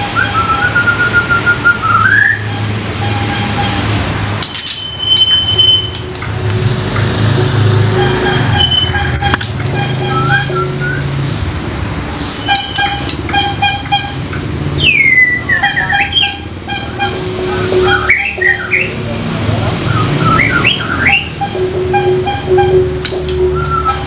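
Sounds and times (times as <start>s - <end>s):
short repeating tones: 2.3s - 11.2s, 12.4s - 19.1s, 19.9s - 24.0s
bird harsh calls: 14.7s - 19.0s.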